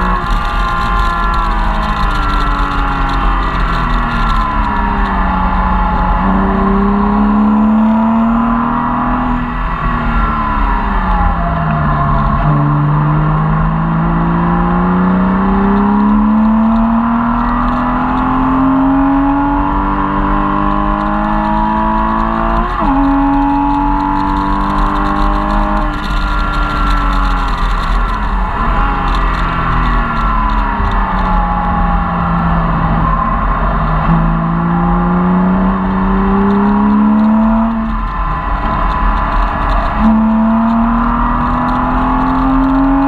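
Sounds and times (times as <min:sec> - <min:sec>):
car engine revving in cabin: 0:00.0 - 0:43.0
road and wind noise: 0:00.0 - 0:43.0.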